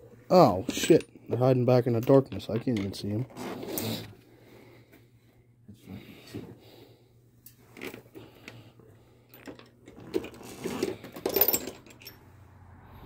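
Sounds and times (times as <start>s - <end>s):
metal tools clinking: 0.5s - 3.2s, 9.3s - 12.2s.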